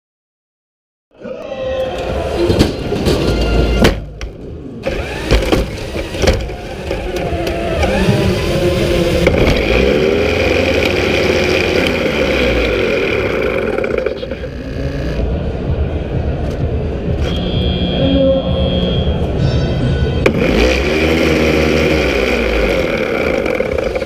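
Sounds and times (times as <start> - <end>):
electric motors whining: 4.8 - 15.4, 20.2 - 24.0.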